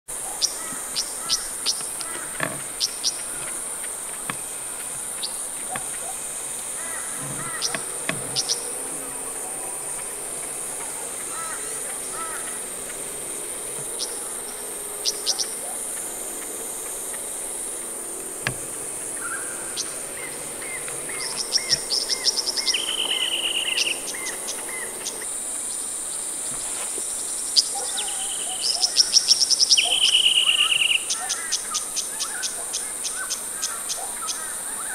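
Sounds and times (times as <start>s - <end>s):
insects droning: 0.1s - 34.9s
bird song: 0.2s - 17.8s, 18.5s - 26.3s, 27.1s - 34.9s
quick high ticks and buzzy bird notes: 0.4s - 26.0s.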